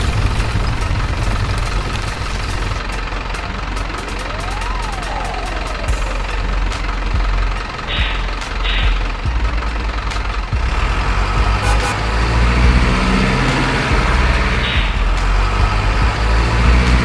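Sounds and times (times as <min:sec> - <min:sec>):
diesel truck engine sound: 0:00.0 - 0:17.0.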